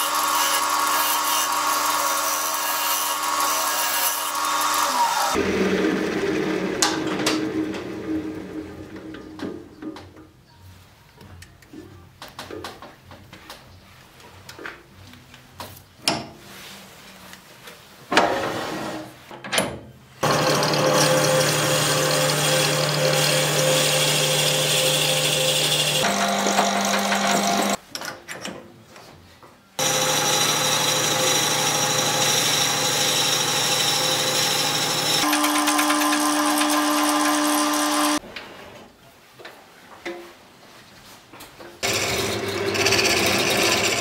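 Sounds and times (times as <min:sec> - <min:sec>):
drill bit boring into wood: 0:20.2 - 0:27.8, 0:29.8 - 0:38.2, 0:41.8 - 0:44.0
wood lathe humming and whining: 0:20.2 - 0:27.8, 0:29.8 - 0:38.2, 0:41.8 - 0:44.0.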